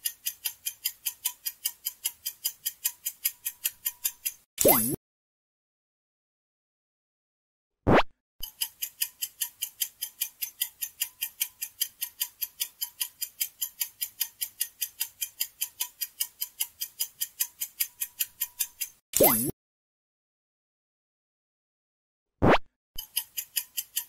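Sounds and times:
clock ticking rapidly: 0.0s - 5.0s, 8.4s - 19.5s, 23.0s - 24.0s.

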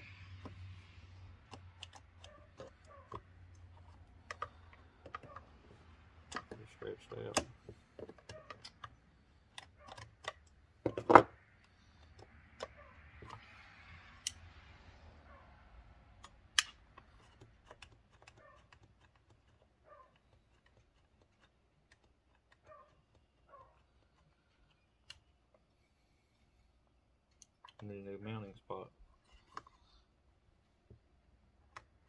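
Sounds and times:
plastic and metal parts clicking: 1.4s - 13.4s, 16.1s - 25.6s, 27.2s - 28.0s.

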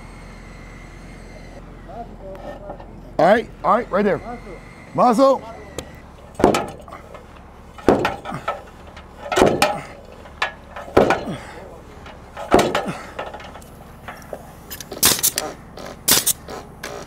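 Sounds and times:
pneumatic nailer shots: 5.8s - 7.0s, 7.8s - 9.9s, 12.3s - 13.6s, 14.7s - 17.0s
sledgehammer striking timber beam: 6.3s - 7.1s, 7.8s - 13.2s.

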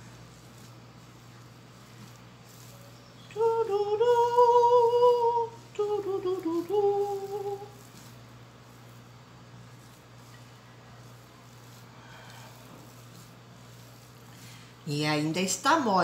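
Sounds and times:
woman humming: 3.4s - 7.8s.

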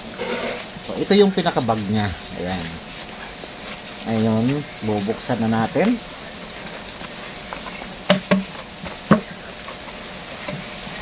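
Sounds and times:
sharp clicks and knocks: 8.1s - 9.3s.

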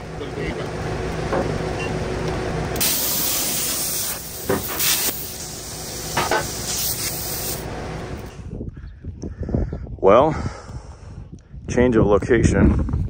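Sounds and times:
electric arc hissing on steel: 2.8s - 8.3s.

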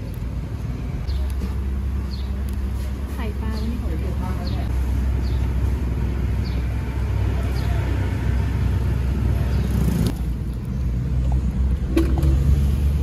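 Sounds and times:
gas burner rumbling: 0.0s - 13.0s.

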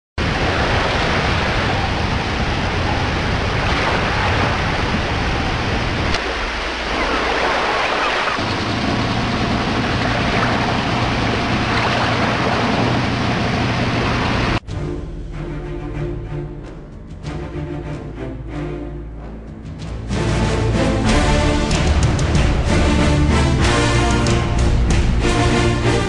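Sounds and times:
sea wash: 0.2s - 14.6s
wind: 0.2s - 14.7s
low engine hum: 7.1s - 14.6s.

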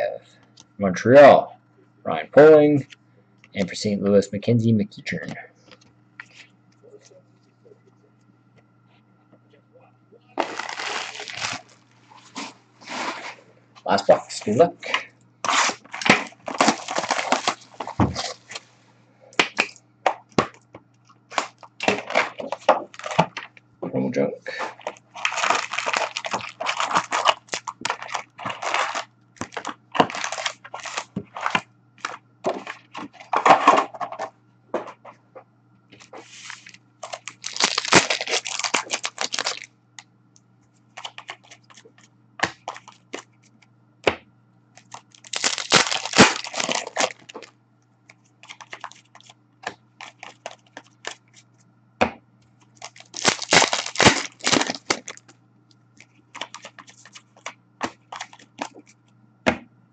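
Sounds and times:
foil wrappers tearing and crinkling: 10.4s - 13.4s, 15.4s - 18.7s, 21.3s - 23.5s, 24.5s - 33.6s, 36.2s - 39.7s, 41.0s - 43.2s, 44.8s - 47.5s, 48.4s - 51.2s, 52.7s - 55.3s, 56.3s - 58.9s.

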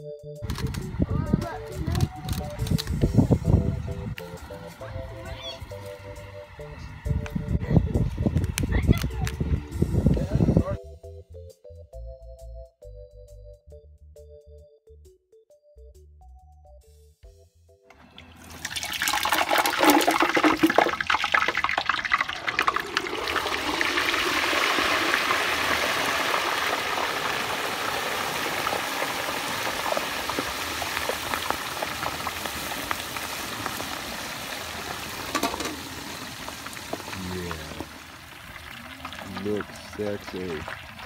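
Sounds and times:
oil sizzling and bubbling: 3.0s - 8.8s, 17.9s - 41.0s.

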